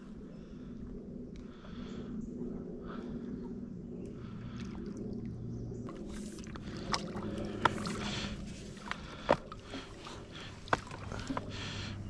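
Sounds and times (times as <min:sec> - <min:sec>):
water splashing and sloshing: 0:02.9 - 0:12.0.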